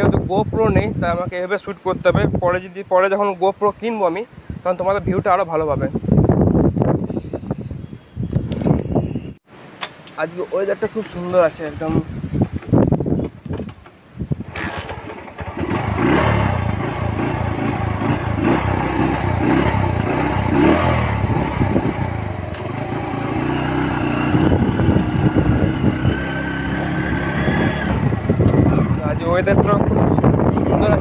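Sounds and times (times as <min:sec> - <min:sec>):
motorcycle engine revving and accelerating: 0:14.5 - 0:31.0.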